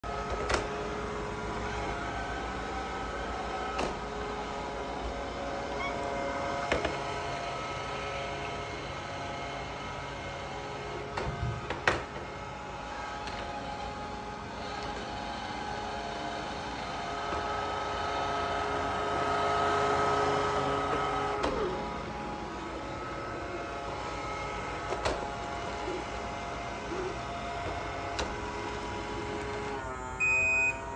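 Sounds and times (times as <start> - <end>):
robot vacuum motor hum: 0.1 - 30.9.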